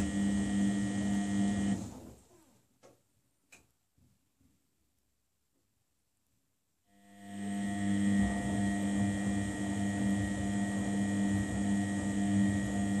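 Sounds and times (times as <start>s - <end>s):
washing machine motor hum: 0.0s - 2.0s, 7.1s - 13.0s.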